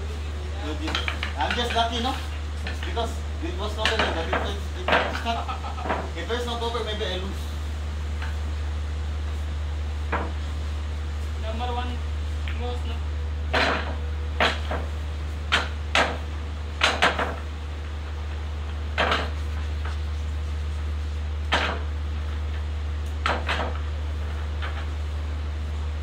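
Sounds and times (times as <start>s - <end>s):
steady low hum: 0.0s - 26.0s
pool balls clacking: 0.7s - 7.0s, 18.9s - 20.0s.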